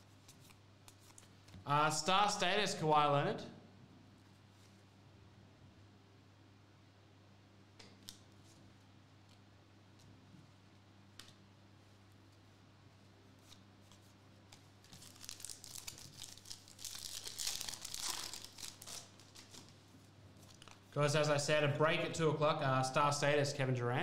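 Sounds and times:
foil wrapper tearing and crinkling: 0:14.9 - 0:19.8.

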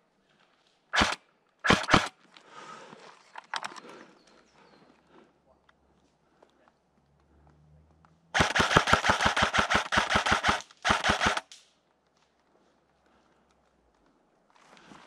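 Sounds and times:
rapid automatic gunfire: 0:01.0 - 0:02.1, 0:08.4 - 0:11.5.

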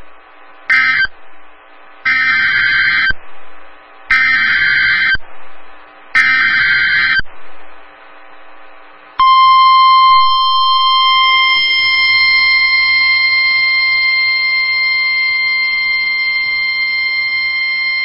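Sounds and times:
loud steady alarm beep: 0:00.7 - 0:01.1, 0:02.1 - 0:03.2, 0:04.1 - 0:05.2, 0:06.2 - 0:07.2, 0:09.2 - 0:18.0.

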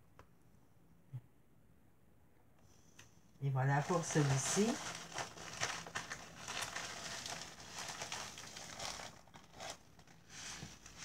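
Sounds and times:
plastic bag crinkling: 0:03.7 - 0:11.0.

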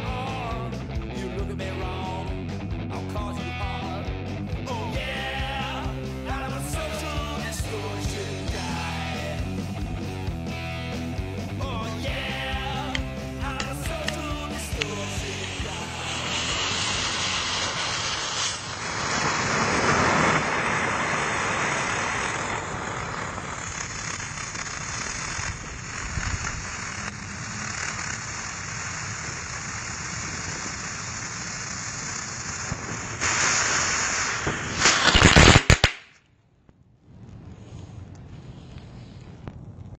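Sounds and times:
firework crackling: 0:00.0 - 0:39.9
firework fizzing with steady hiss: 0:04.7 - 0:36.2.

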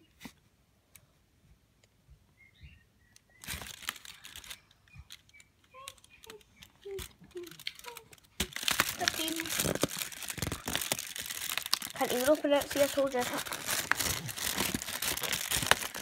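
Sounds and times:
small clicks: 0:03.1 - 0:08.6
cardboard rustling: 0:03.4 - 0:05.2, 0:05.8 - 0:16.0.

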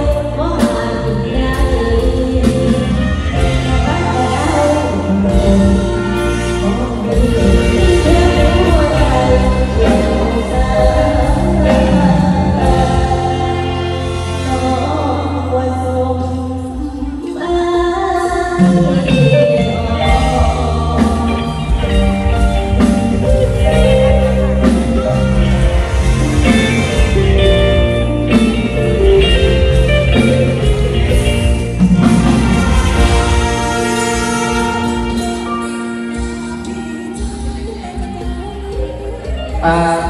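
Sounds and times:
woman singing through pa: 0:00.0 - 0:31.3, 0:32.0 - 0:40.0
amplified band with bass line: 0:00.0 - 0:40.0.

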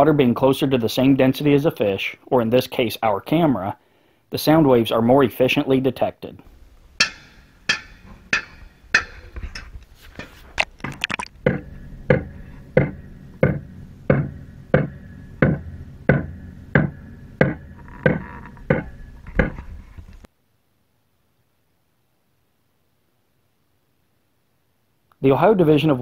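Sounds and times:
heavy thuds heard underwater: 0:07.0 - 0:19.7.

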